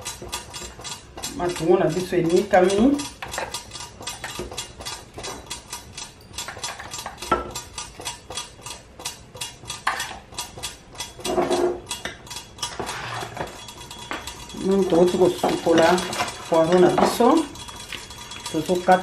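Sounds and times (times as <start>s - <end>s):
utensil scraping plastic bowl: 12.7s - 13.6s.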